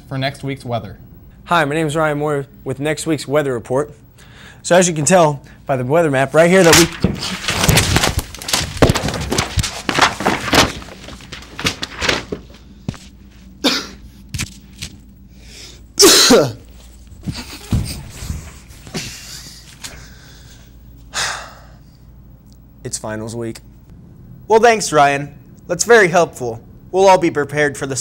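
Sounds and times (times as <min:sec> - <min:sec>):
knocks and thumps against wall: 0:17.2 - 0:18.4.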